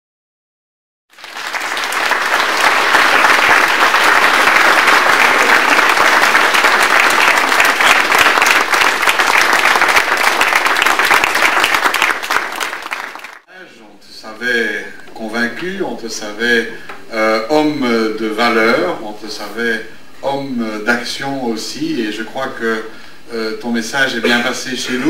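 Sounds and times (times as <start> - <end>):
audience applauding: 1.1 - 13.5.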